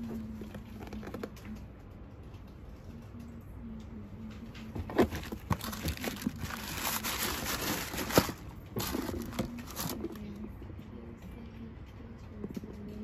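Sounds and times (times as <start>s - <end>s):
wrapping paper crinkling: 5.0s - 10.3s.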